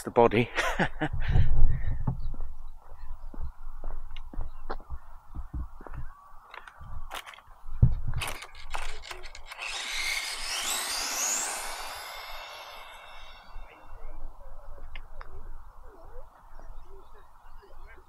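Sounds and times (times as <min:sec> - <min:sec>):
toy truck electric motor whining: 0:08.2 - 0:14.0.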